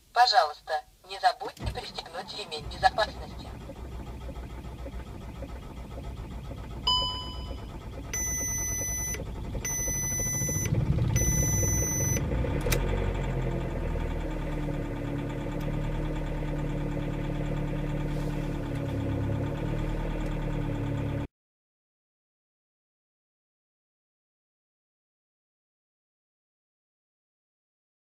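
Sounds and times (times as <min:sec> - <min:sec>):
engine cranking and starting: 0:01.6 - 0:21.3
engine fast idle whine: 0:01.6 - 0:21.3
electronic warning chimes: 0:06.9 - 0:12.2.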